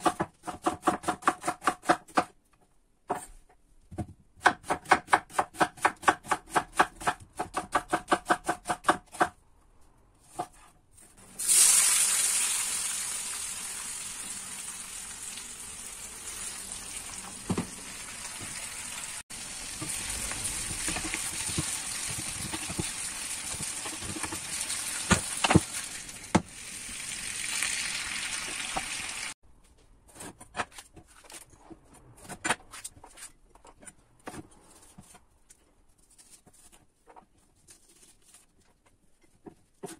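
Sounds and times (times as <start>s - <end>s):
knife chopping on wooden board: 3.9s - 9.4s
onion sizzling in frying pan: 11.4s - 29.4s.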